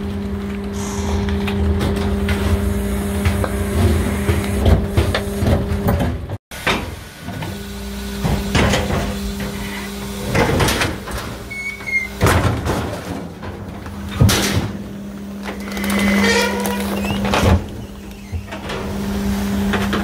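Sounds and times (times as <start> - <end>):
hydraulic pump hum: 0.0 - 12.4.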